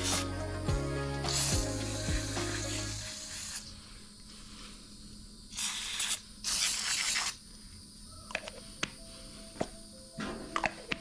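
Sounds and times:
aerosol can spraying: 0.0s - 0.4s, 1.2s - 3.7s, 5.5s - 7.4s.

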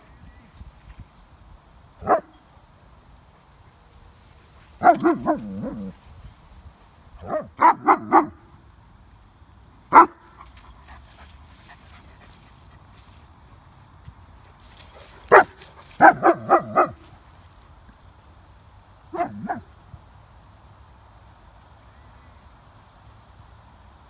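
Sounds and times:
dog barking: 2.0s - 2.3s, 4.8s - 6.0s, 7.2s - 8.4s, 9.9s - 10.2s, 15.3s - 17.0s, 19.1s - 19.7s.

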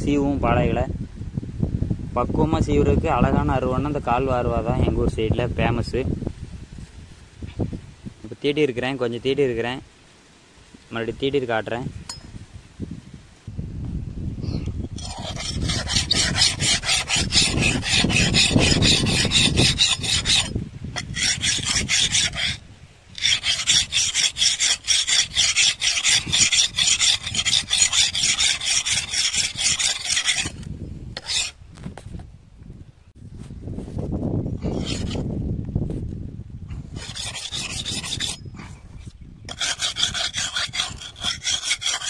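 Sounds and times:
blade scraping on sharpening surface: 15.0s - 22.6s, 23.2s - 31.6s, 34.6s - 35.2s, 37.0s - 38.5s, 39.5s - 42.0s.

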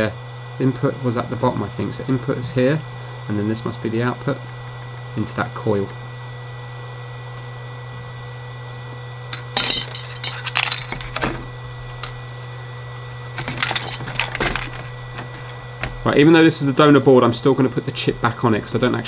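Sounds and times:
steady low hum: 0.0s - 19.0s
objects clinking on a workbench: 9.4s - 11.3s, 13.4s - 14.9s.

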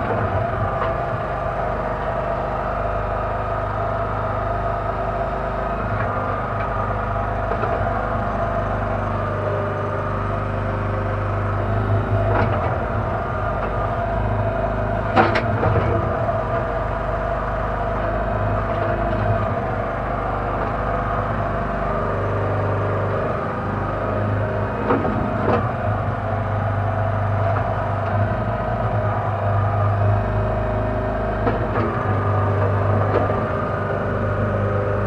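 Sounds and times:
backhoe engine running: 0.0s - 35.0s.

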